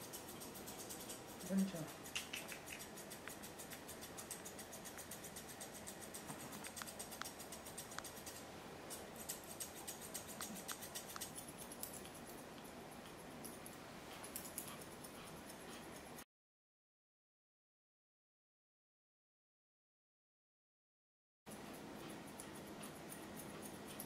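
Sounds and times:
grooming shears snipping: 0:00.1 - 0:16.1.

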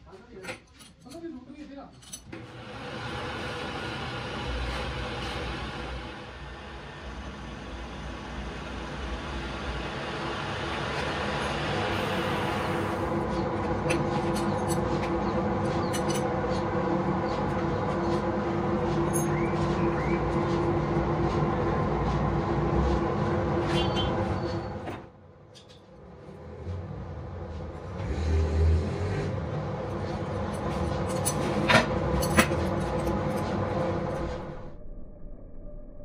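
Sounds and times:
lathe tool cutting hiss: 0:02.4 - 0:13.1
metal lathe running: 0:02.4 - 0:24.8.

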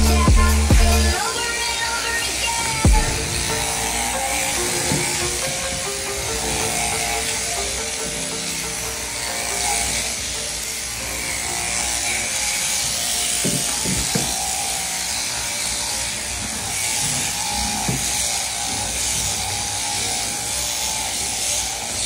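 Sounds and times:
music playing: 0:00.0 - 0:12.4
shearing handpiece buzzing: 0:00.0 - 0:22.0.

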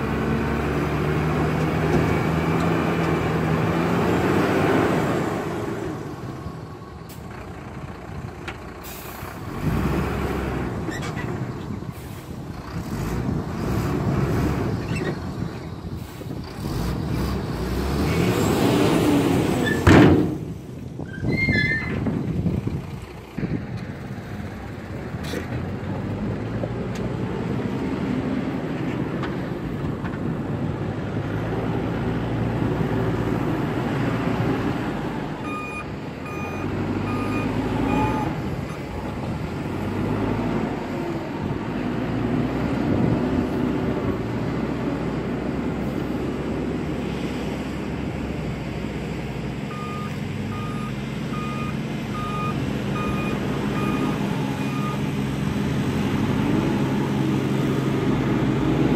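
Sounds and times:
diesel engine running under load: 0:00.0 - 0:58.9
reversing alarm beeping: 0:35.4 - 0:38.4, 0:49.7 - 0:55.1.

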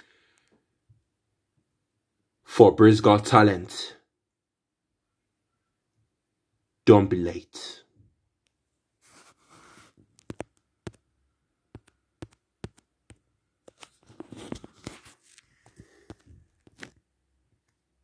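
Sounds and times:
phone handling clicks and taps: 0:10.2 - 0:11.0
phone handling rustle: 0:13.7 - 0:17.0.

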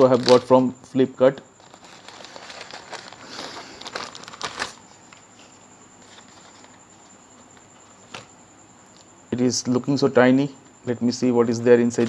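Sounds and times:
plastic packaging crinkling: 0:00.0 - 0:00.6, 0:01.5 - 0:04.9, 0:06.0 - 0:06.8.

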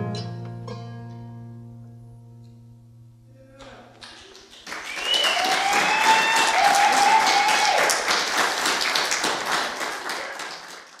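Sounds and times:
person cheering: 0:03.4 - 0:08.1
audience applauding: 0:03.9 - 0:11.0.

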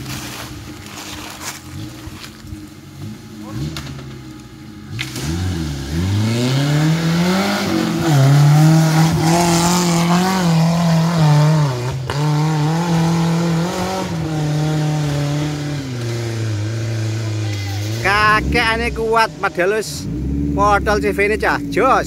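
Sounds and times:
jeep engine revving hard: 0:04.9 - 0:22.0.

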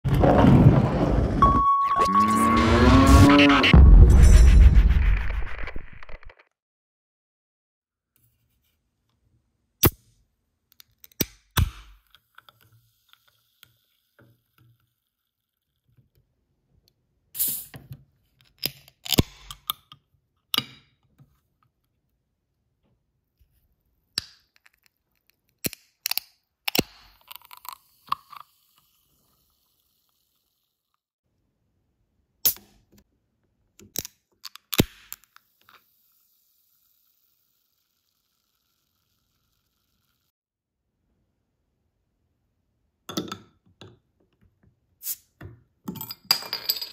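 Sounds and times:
short hiss of can seal: 0:17.4 - 0:17.8, 0:45.0 - 0:45.3
hiss and fizz of carbonation: 0:27.6 - 0:30.8.

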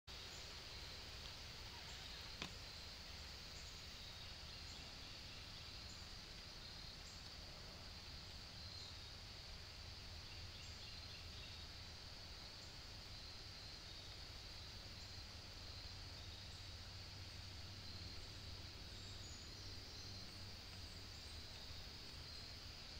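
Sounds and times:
high-pitched insect hum: 0:00.1 - 0:22.9.

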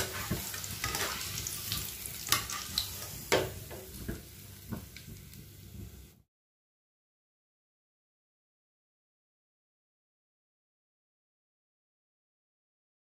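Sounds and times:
food sizzling in hot oil: 0:00.0 - 0:06.2.

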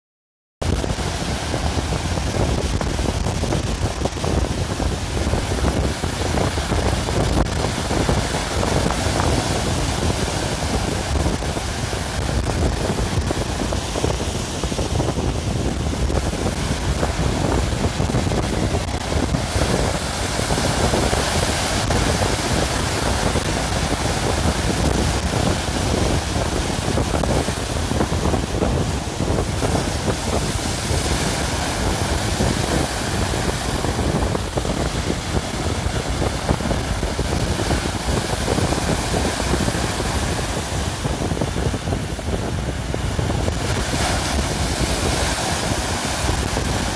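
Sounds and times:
wind buffeting microphone: 0:00.6 - 0:46.9.

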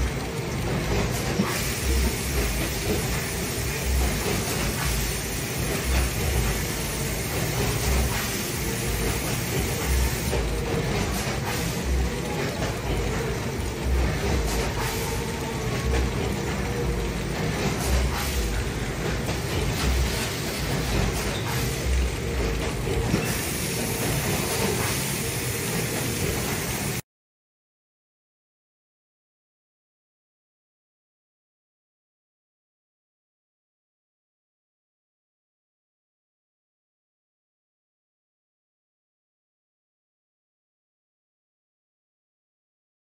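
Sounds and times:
conveyor machinery rattle and rumble: 0:00.0 - 0:27.0.

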